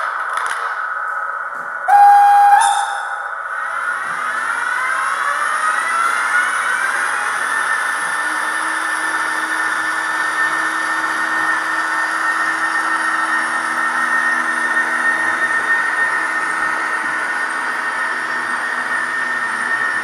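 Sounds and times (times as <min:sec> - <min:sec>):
low steady hum: 0:00.0 - 0:03.6
model train wheels and motor whirring: 0:03.3 - 0:20.0.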